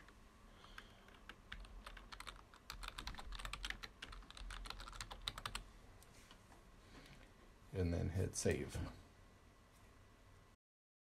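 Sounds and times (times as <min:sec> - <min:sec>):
computer keyboard typing: 0:00.0 - 0:05.6.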